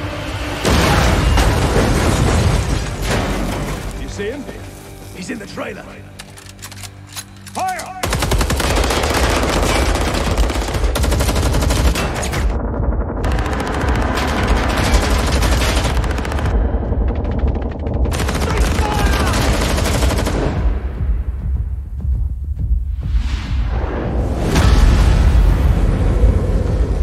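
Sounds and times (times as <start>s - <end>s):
automatic rifles firing: 7.6s - 12.6s, 17.2s - 20.6s
steady low rumble: 20.6s - 27.0s.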